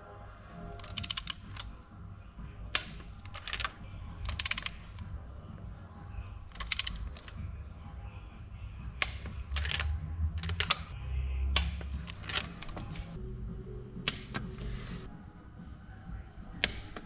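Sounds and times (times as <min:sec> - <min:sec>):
ratchet wrench clicking: 0:00.8 - 0:01.6, 0:02.8 - 0:05.0, 0:06.5 - 0:07.4, 0:09.0 - 0:11.0.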